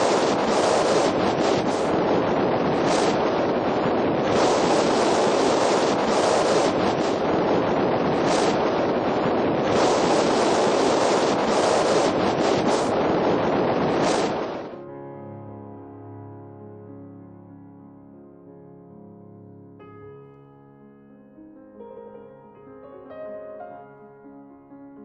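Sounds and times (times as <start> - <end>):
strong wind on microphone: 0.0 - 14.8.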